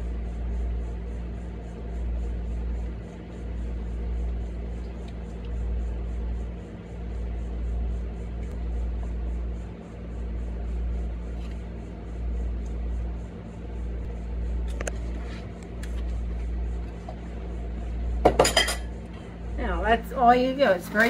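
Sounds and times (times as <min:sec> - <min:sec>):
low hum: 0:00.0 - 0:21.0
dishes and utensils clattering: 0:18.3 - 0:18.9.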